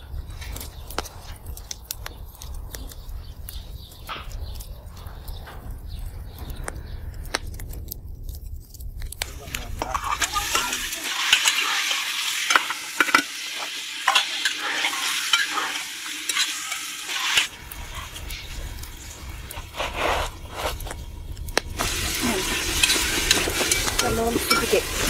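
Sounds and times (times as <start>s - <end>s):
food sizzling in pot: 9.2s - 25.0s
metal ladle scraping pot: 9.7s - 18.5s, 21.8s - 25.0s
low rumble: 17.5s - 25.0s.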